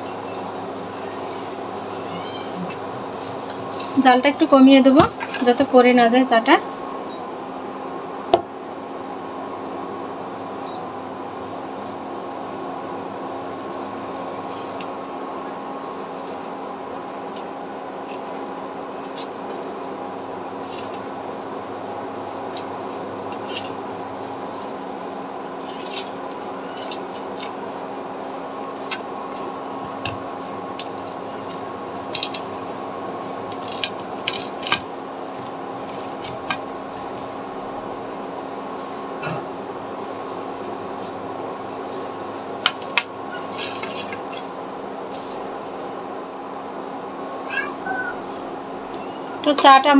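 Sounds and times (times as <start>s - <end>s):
steady background hum: 0.0s - 49.9s.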